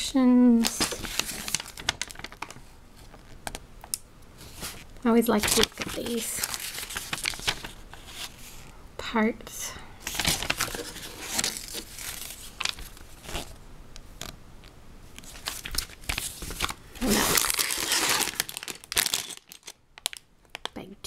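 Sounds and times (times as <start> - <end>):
plastic bag crinkling: 0.6 - 3.3, 4.4 - 8.4, 10.0 - 13.6, 15.2 - 20.8
paper pages rustling: 0.6 - 3.6, 4.4 - 8.6, 10.0 - 13.6, 15.2 - 20.2.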